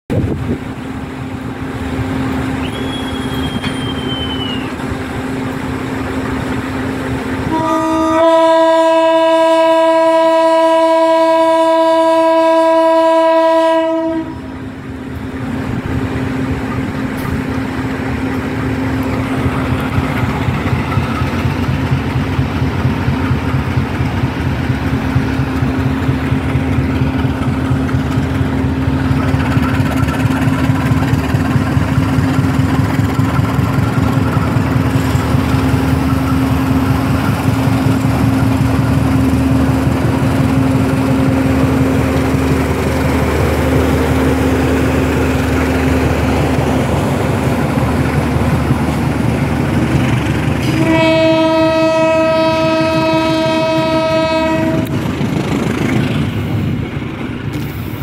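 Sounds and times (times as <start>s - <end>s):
diesel train engines humming: 0.1s - 58.0s
train horn blast: 7.4s - 14.6s, 50.6s - 55.0s.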